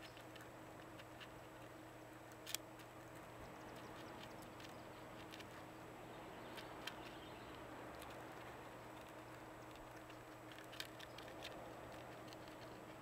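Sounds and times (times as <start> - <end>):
seeds clicking and rustling: 0.0 - 13.0.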